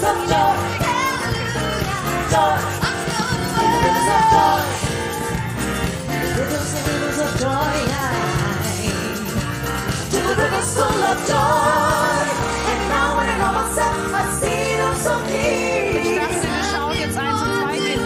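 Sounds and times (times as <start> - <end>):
female vocal group singing: 0.0 - 5.5, 10.0 - 18.0
pop music with steady beat: 0.0 - 18.0.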